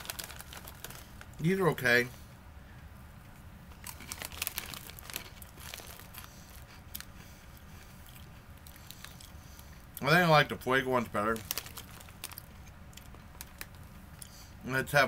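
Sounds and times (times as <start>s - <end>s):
crunchy snack being chewed: 0.0s - 1.4s, 3.8s - 9.9s, 11.4s - 14.4s
snack bag crinkling: 0.0s - 1.5s, 3.7s - 7.1s, 8.0s - 9.4s, 11.1s - 14.3s.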